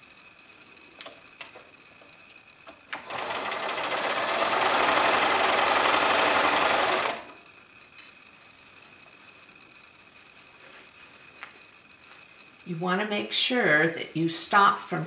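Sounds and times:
sewing machine stitching: 2.9s - 7.4s.

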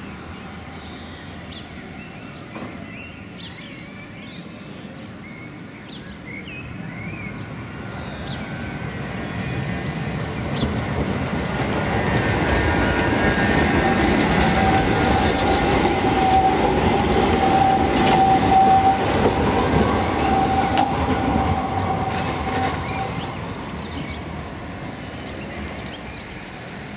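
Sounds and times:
tram passing by: 0.0s - 26.9s
tram high whine: 6.6s - 26.9s.

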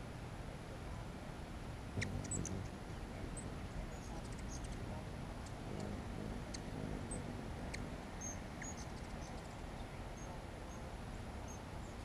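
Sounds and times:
hummingbird wings buzzing: 2.0s - 10.2s.

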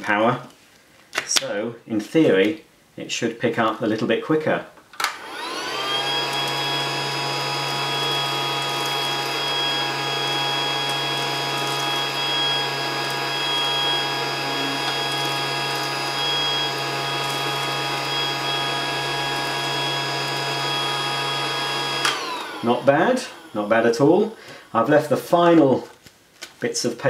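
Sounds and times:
toy vacuum cleaner motor whine: 5.2s - 23.9s.

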